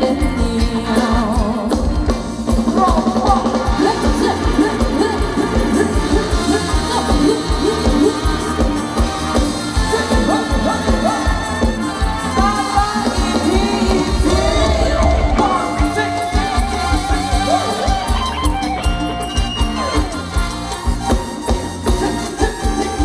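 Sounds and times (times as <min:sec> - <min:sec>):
steady drum beat: 0:00.0 - 0:23.0
person singing wavering melody: 0:13.1 - 0:18.4.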